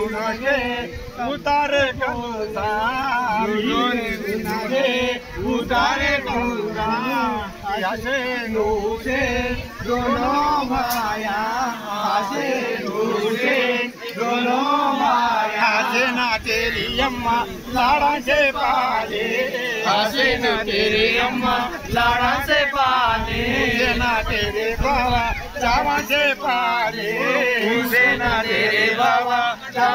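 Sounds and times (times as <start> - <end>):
men singing devotional chant: 0.0 - 29.9.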